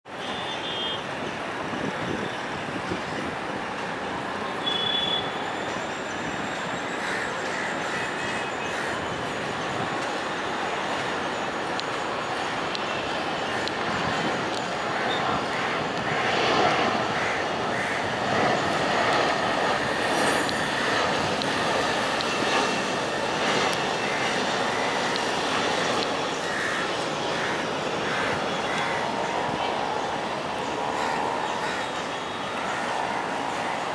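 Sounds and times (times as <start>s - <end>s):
jet engines rumbling hiss: 1.2s - 33.9s
thin high whine: 18.6s - 33.9s.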